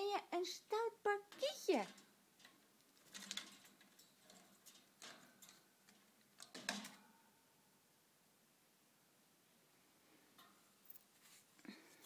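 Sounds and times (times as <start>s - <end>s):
faint clicks and rustles: 1.2s - 7.2s, 10.0s - 12.0s.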